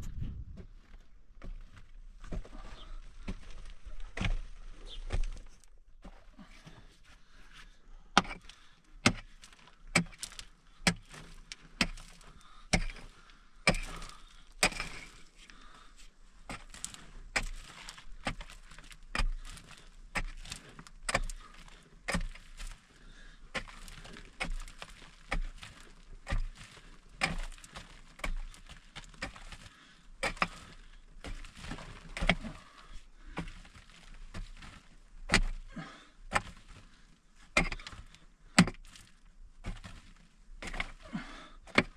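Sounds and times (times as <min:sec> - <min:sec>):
pickaxe striking earth: 0:03.2 - 0:04.4, 0:08.2 - 0:15.3, 0:16.4 - 0:36.8, 0:37.5 - 0:41.9.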